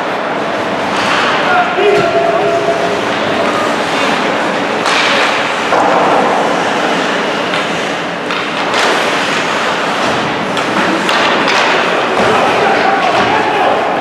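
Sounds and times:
arena crowd hubbub: 0.0 - 14.0
sharp knocks from hockey play: 7.5 - 13.5.

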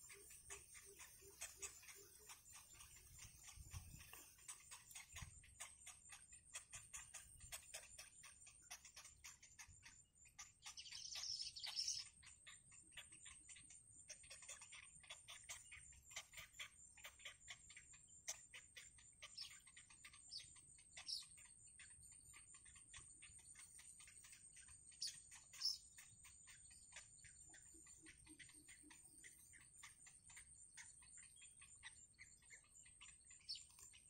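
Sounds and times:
high chittering: 0.0 - 12.1
bird chicks ticking calls: 0.0 - 34.0.

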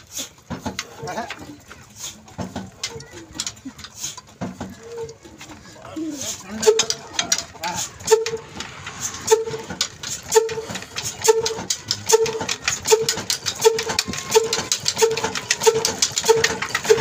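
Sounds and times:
mechanical clatter: 6.5 - 17.0
diesel engine firing pops: 6.6 - 17.0.

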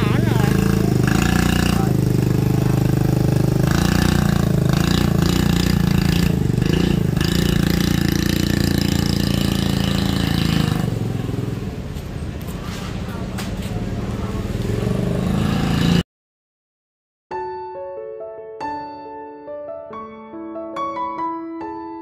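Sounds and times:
motorbike engine running: 0.0 - 11.8.

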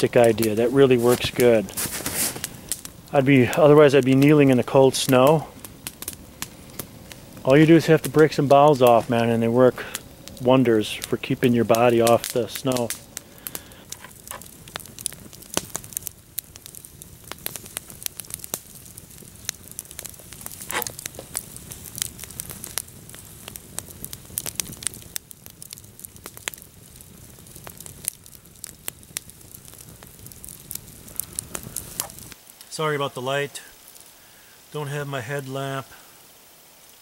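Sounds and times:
campfire crackling and popping: 0.0 - 37.0.

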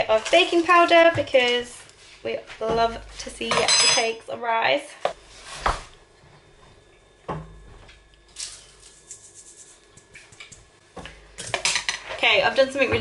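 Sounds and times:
kitchen utensils knocking: 3.5 - 4.2.

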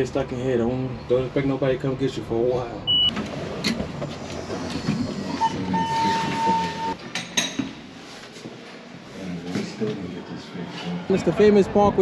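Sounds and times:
elevator running and rattling: 3.1 - 7.0
high steady squeal: 4.2 - 7.0.

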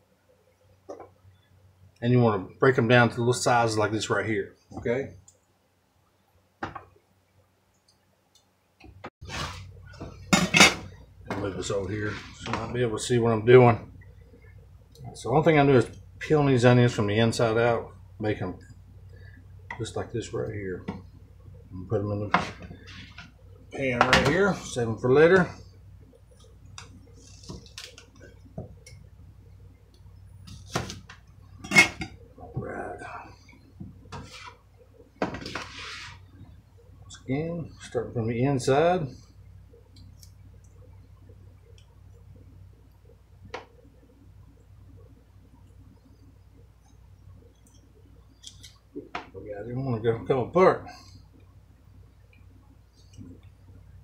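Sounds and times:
clatter of kitchen things: 10.0 - 11.5, 31.6 - 32.2.

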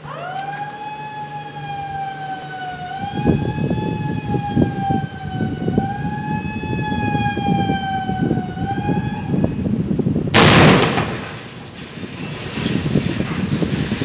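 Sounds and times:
warning siren wailing: 0.0 - 10.5
demolition explosion boom: 10.3 - 14.0.

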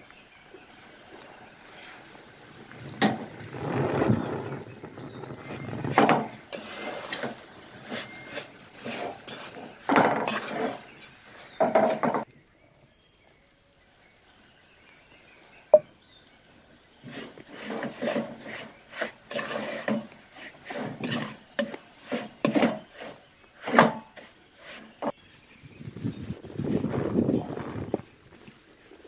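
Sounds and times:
wooden spoon scraping flour in pot: 1.7 - 12.2, 17.0 - 25.2.

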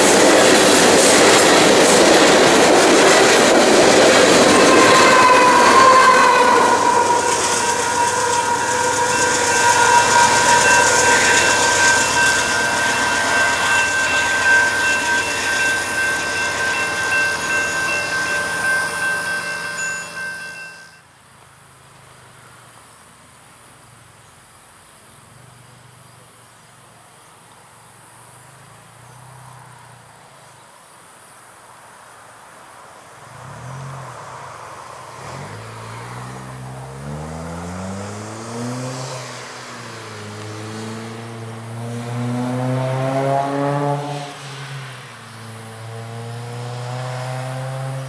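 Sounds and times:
insects chirping: 6.5 - 20.6
engine revving: 35.2 - 44.6, 45.5 - 48.0.

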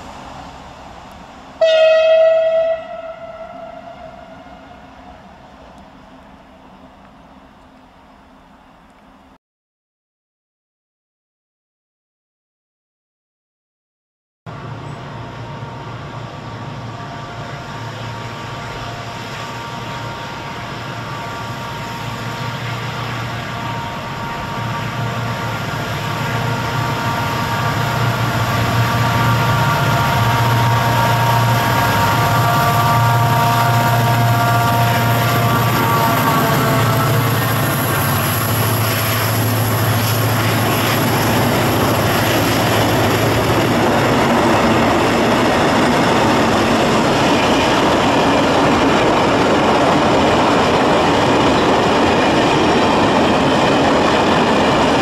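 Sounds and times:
diesel locomotive engine running: 14.5 - 55.0.

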